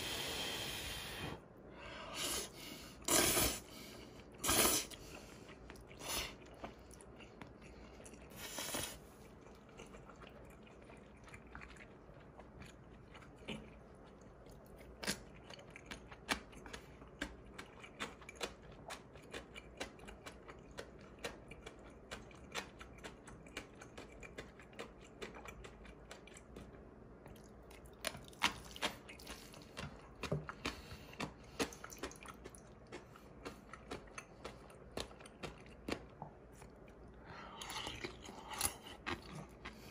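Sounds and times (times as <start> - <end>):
person chewing crunchy food: 4.2 - 39.9.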